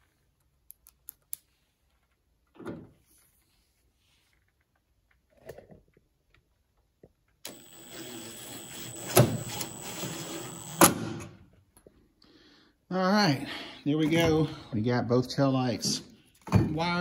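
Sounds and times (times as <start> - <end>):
impact driver motor whining: 7.5 - 11.2.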